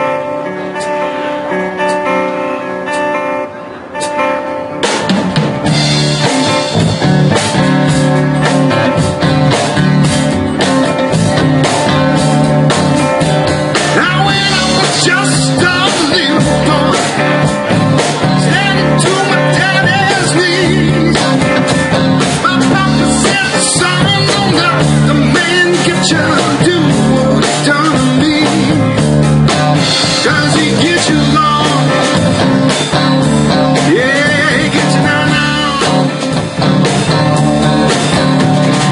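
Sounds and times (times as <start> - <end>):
live rock band playing: 0.0 - 38.9
person singing: 13.7 - 29.0, 30.0 - 32.2, 33.8 - 36.2.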